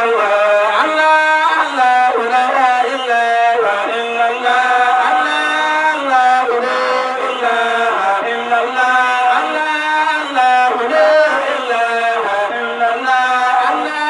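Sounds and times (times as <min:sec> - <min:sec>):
men chanting into microphones: 0:00.0 - 0:14.0.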